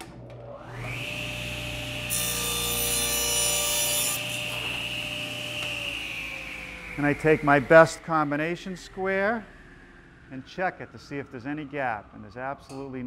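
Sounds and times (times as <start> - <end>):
table saw motor whining: 0.0 - 12.3
saw blade cutting wood: 0.9 - 6.2.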